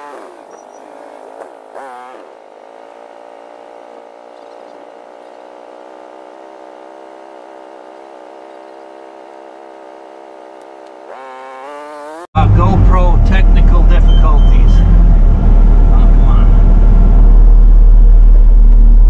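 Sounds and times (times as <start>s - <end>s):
engine idling: 12.4s - 19.0s.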